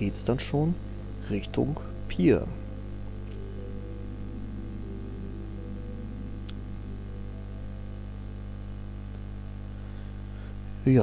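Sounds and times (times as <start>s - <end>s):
faint held tones: 0.0s - 10.5s
steady low hum: 0.0s - 11.0s.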